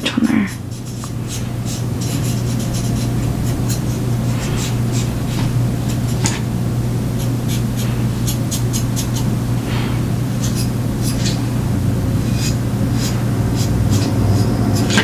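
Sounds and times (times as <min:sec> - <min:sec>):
steady low hum: 0:00.0 - 0:15.0
fingertip rubbing on plastic: 0:00.5 - 0:06.4, 0:10.3 - 0:11.5, 0:12.2 - 0:15.0.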